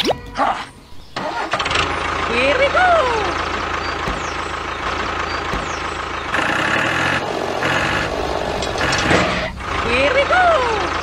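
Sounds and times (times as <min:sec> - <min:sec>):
engine idling: 0:01.2 - 0:11.0
low thumps: 0:07.8 - 0:11.0.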